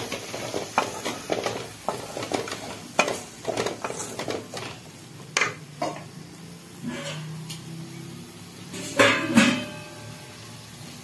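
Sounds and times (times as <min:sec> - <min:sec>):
wooden spatula scraping metal pan: 0:00.0 - 0:04.8, 0:06.8 - 0:07.4
faint frying sizzle: 0:00.0 - 0:11.0.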